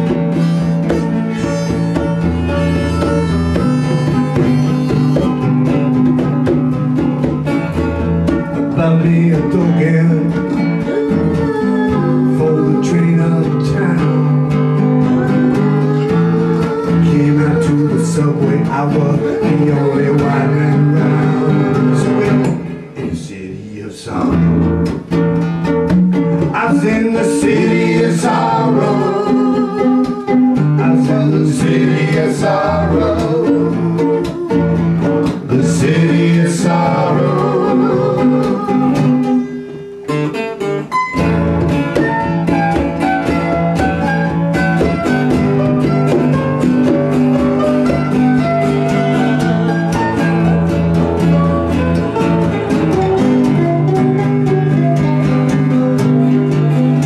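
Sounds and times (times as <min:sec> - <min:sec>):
congas: 0:00.0 - 0:23.1, 0:24.2 - 0:57.0
strummed acoustic guitars: 0:00.0 - 0:57.0
singing: 0:08.8 - 0:14.3, 0:15.0 - 0:22.6, 0:26.6 - 0:34.7, 0:35.5 - 0:39.4.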